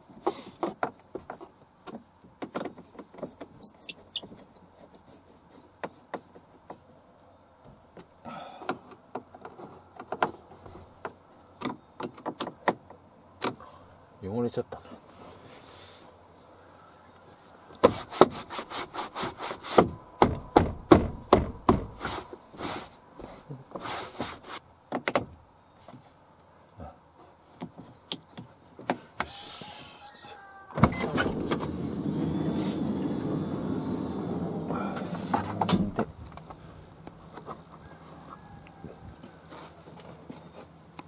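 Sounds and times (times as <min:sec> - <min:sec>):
power sliding door motor running: 0:31.0 - 0:35.7
door clunk: 0:35.0 - 0:36.1.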